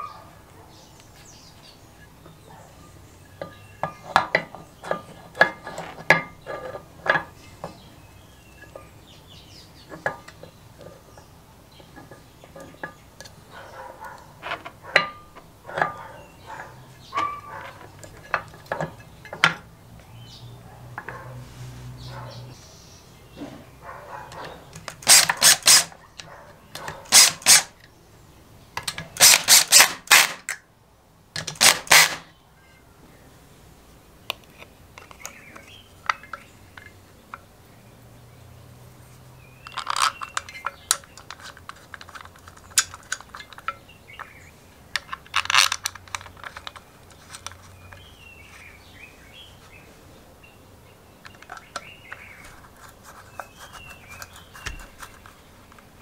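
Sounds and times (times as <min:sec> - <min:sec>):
screwdriver clicking and scraping metal: 0:24.3 - 0:27.8, 0:28.8 - 0:30.6, 0:31.4 - 0:32.2, 0:39.7 - 0:44.3, 0:45.0 - 0:48.1, 0:51.3 - 0:55.9.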